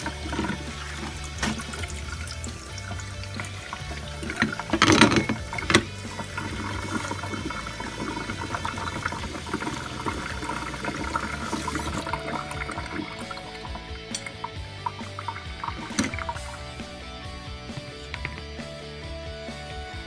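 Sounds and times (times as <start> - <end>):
water running over eggs in colander: 0.0 - 16.8
water splashing: 0.0 - 16.8.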